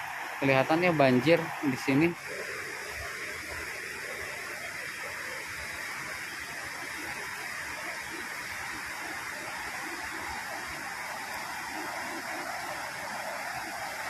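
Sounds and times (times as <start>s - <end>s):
river rushing in flood: 0.0s - 14.0s.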